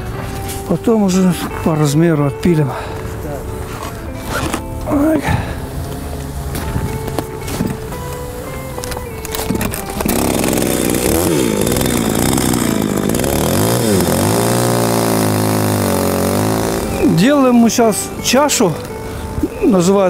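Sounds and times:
chainsaw sawing ice: 0:09.3 - 0:20.0.

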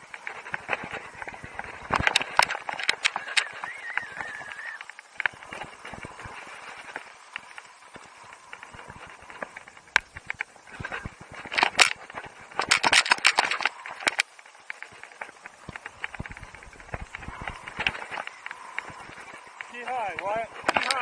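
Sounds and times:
skis scraping over snow: 0:00.0 - 0:21.0.

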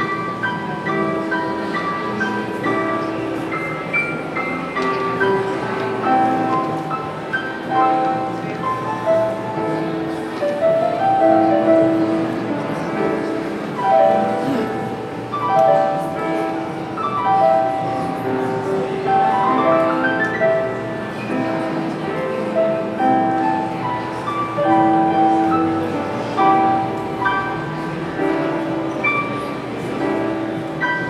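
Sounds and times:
gentle piano music: 0:00.0 - 0:31.0.

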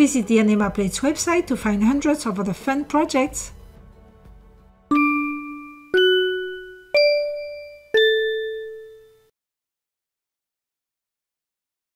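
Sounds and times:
bell-like chime jingle: 0:04.9 - 0:09.2.

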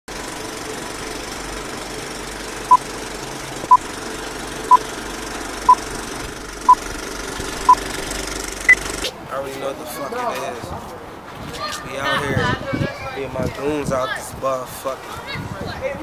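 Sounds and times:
film projector whirring and rattling: 0:00.1 - 0:09.0.

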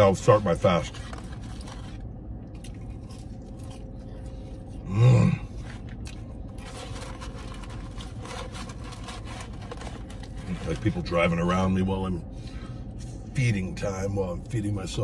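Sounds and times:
low car interior hum: 0:00.0 - 0:15.0
faint chewing: 0:00.9 - 0:10.8
paper carton rustling: 0:06.5 - 0:11.1.

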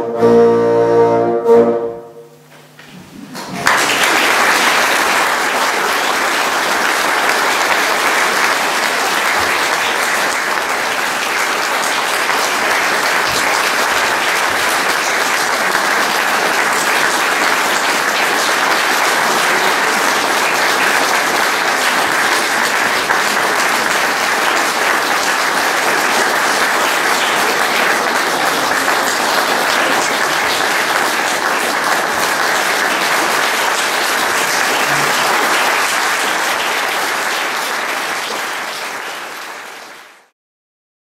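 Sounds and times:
audience applauding: 0:02.8 - 0:40.3.

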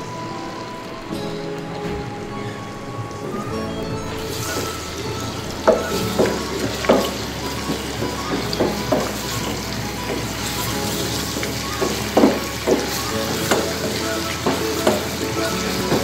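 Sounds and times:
paste sizzling in hot oil: 0:04.2 - 0:16.0
wooden spatula scraping pan: 0:04.2 - 0:16.0.

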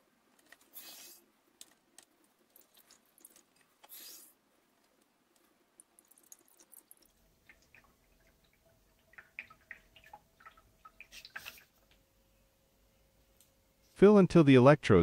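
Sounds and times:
liquid dripping: 0:01.6 - 0:03.8, 0:05.4 - 0:12.1.

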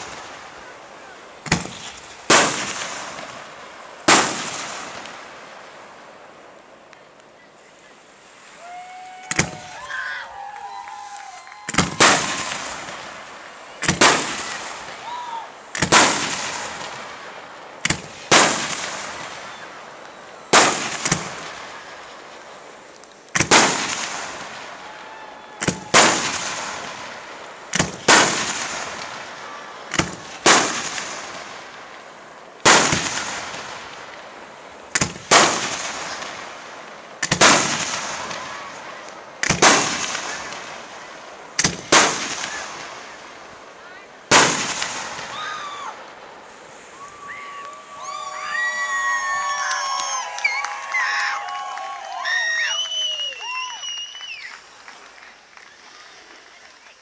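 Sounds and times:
firework shells bursting: 0:00.0 - 0:05.8, 0:11.2 - 0:49.9.

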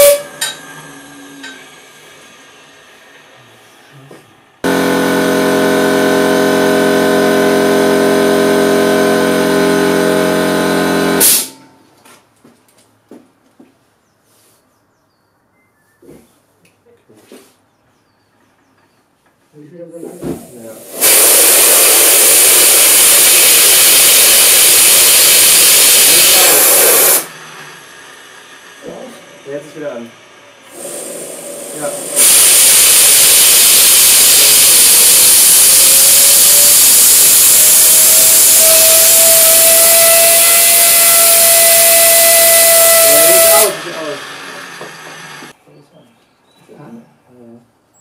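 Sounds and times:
compressed air blow gun hissing: 0:20.8 - 0:28.7, 0:30.7 - 0:44.2
small jet engine whining: 0:21.0 - 0:45.5.

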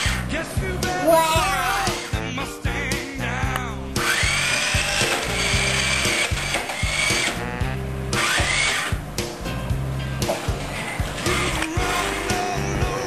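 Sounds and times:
toy car motor whine: 0:00.0 - 0:00.3, 0:01.1 - 0:02.3, 0:04.0 - 0:07.6, 0:08.2 - 0:08.9, 0:10.7 - 0:12.5
music with bass beat: 0:00.0 - 0:13.0.

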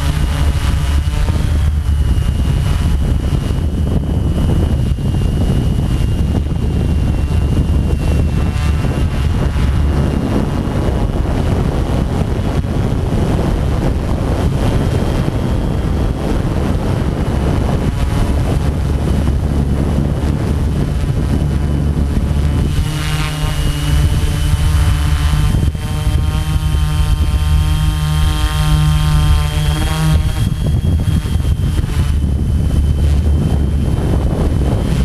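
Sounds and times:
drone motor whine: 0:00.0 - 0:35.0
propeller wash and wind rush: 0:00.0 - 0:35.0.

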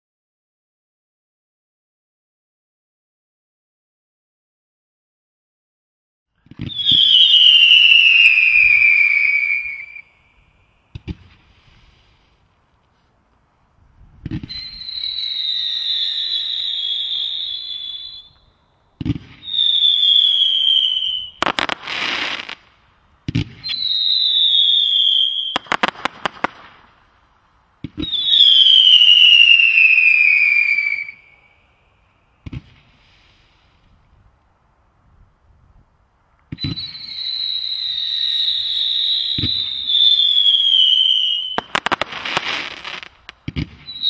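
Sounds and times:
firework crackling: 0:06.4 - 0:12.8, 0:14.2 - 0:18.4, 0:19.0 - 0:31.4, 0:36.4 - 0:44.0
firework whistle falling in pitch: 0:06.6 - 0:10.3, 0:14.3 - 0:18.6, 0:19.3 - 0:22.6, 0:23.6 - 0:26.4, 0:28.0 - 0:32.0, 0:36.5 - 0:43.1, 0:43.8 - 0:44.0
firework launch thump: 0:19.0 - 0:19.4, 0:32.4 - 0:32.8.

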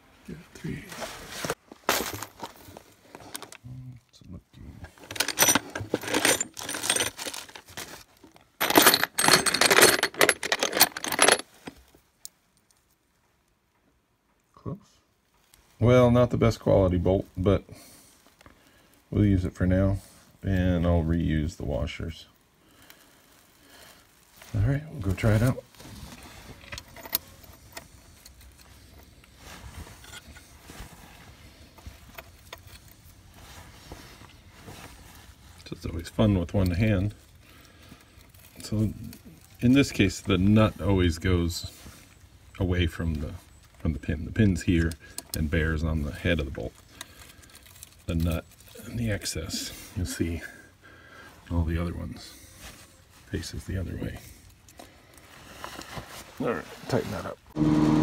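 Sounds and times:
low background noise: 0:00.0 - 0:58.0
steel bolts clinking: 0:05.0 - 0:07.4, 0:08.6 - 0:11.7.

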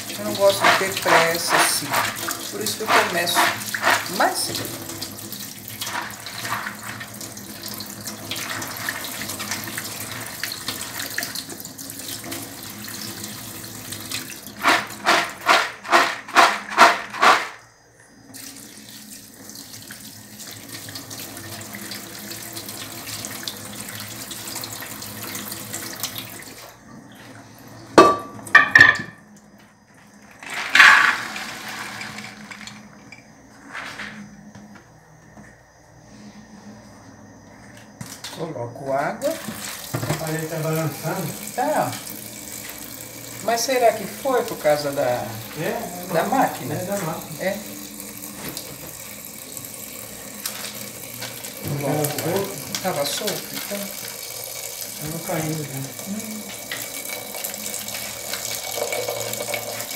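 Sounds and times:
beans rinsed in colander: 0:00.0 - 0:26.8, 0:30.0 - 0:34.2, 0:39.2 - 0:59.9
tap water running: 0:00.0 - 0:33.5, 0:37.9 - 0:59.9
sharp knocks and clatters: 0:14.6 - 0:17.6.

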